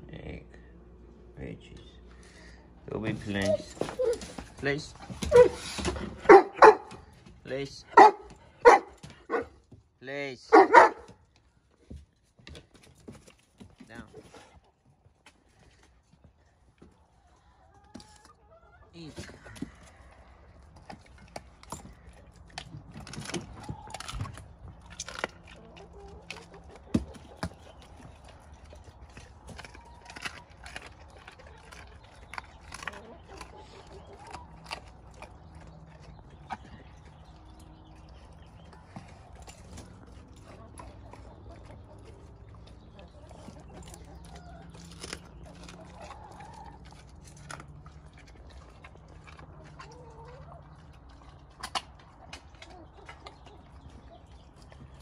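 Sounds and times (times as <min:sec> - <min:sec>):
dog chewing and licking: 0:19.4 - 0:55.0
wavy clucking calls: 0:25.3 - 0:36.6, 0:40.2 - 0:54.6.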